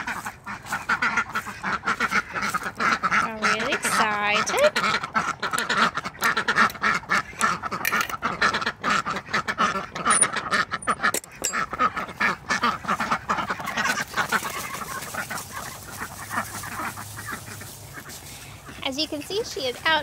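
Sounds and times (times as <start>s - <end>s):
ducks quacking: 0.0s - 20.0s.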